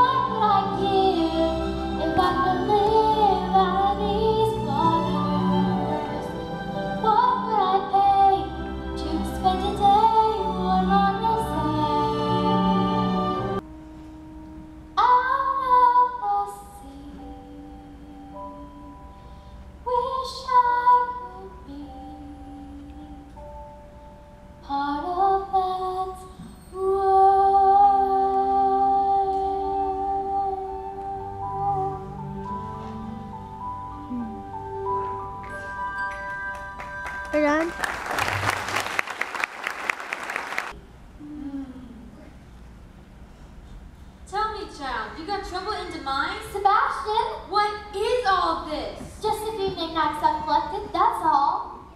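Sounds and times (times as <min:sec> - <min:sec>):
woman singing: 0:00.0 - 0:13.6, 0:15.0 - 0:19.0, 0:19.9 - 0:23.4, 0:24.6 - 0:32.7
musical accompaniment: 0:00.0 - 0:40.7
low steady hum: 0:40.7 - 0:51.9.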